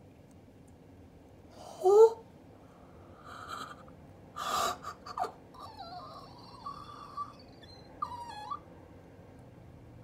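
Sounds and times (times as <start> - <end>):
person whimpering squeakily: 4.6 - 8.6.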